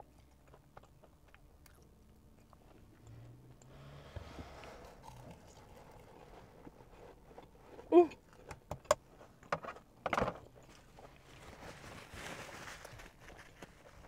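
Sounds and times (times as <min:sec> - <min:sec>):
quiet chewing: 0:00.0 - 0:03.9, 0:04.6 - 0:09.5
loud slurp: 0:03.6 - 0:06.3.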